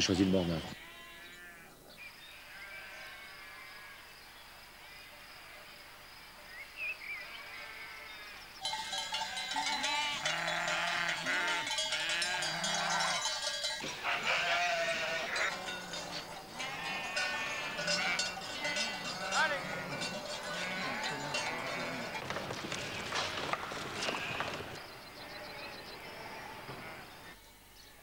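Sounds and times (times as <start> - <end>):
sheep bleating: 0.7 - 1.7, 2.3 - 4.0, 9.1 - 27.1
sheep bells clanking: 8.4 - 25.5.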